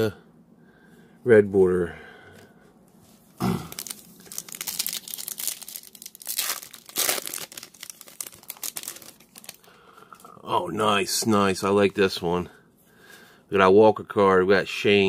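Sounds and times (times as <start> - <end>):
foil wrapper tearing and crinkling: 3.5 - 9.7.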